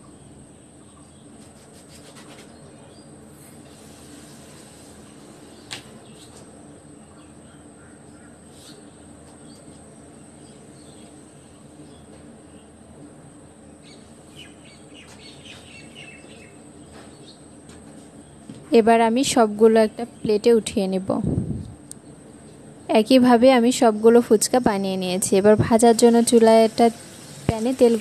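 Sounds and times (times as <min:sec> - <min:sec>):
background hiss and hum: 0:00.0 - 0:28.0
bird chirps: 0:13.8 - 0:17.4.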